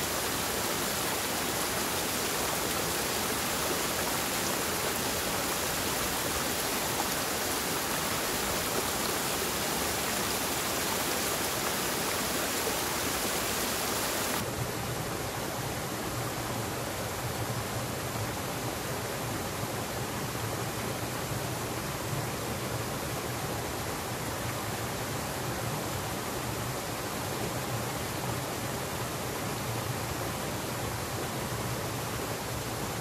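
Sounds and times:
rushing flowing water: 0:00.0 - 0:14.5.

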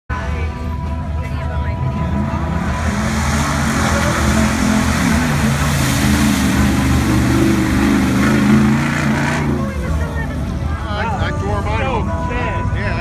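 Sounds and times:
truck engine revving: 0:00.6 - 0:10.9.

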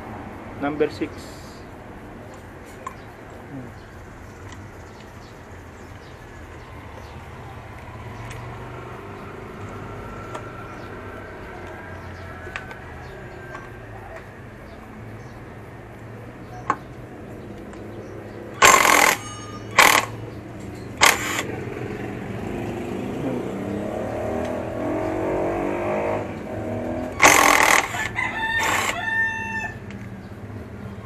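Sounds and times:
rooster crowing: 0:10.0 - 0:14.2, 0:27.2 - 0:29.9
impact driver hammering: 0:18.6 - 0:20.2, 0:21.0 - 0:21.5, 0:27.1 - 0:28.9.

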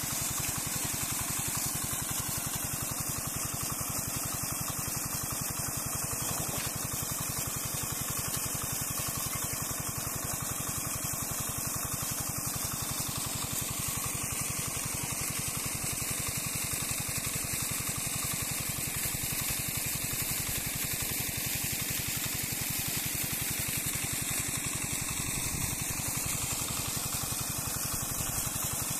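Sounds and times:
water jet splashing: 0:00.0 - 0:16.3.

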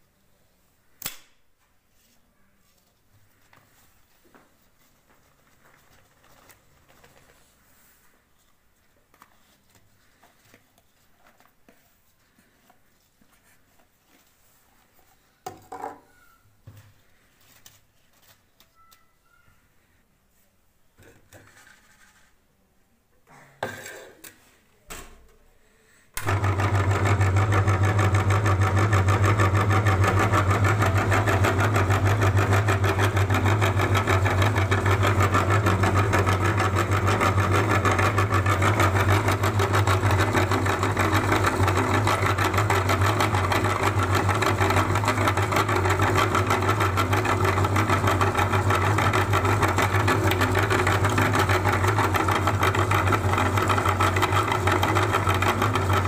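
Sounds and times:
electric meat grinder humming: 0:26.2 - 0:56.0.

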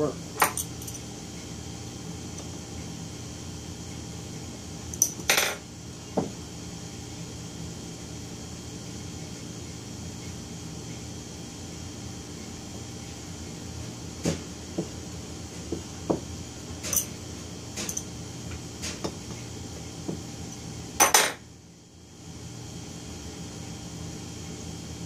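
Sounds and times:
steady background hum: 0:00.0 - 0:25.0.

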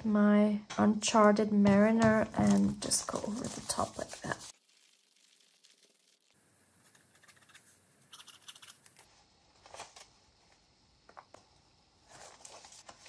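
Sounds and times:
paper rustling: 0:02.4 - 0:04.5, 0:09.6 - 0:10.1, 0:12.1 - 0:13.0.

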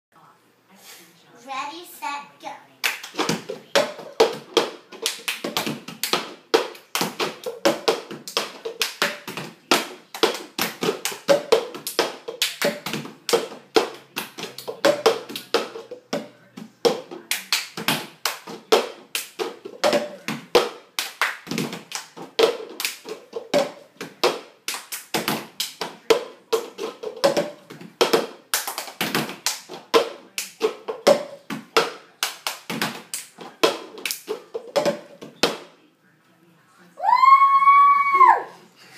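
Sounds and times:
hands clapping: 0:02.8 - 0:35.7
plastic cups tapped on wooden floor: 0:02.9 - 0:35.7.

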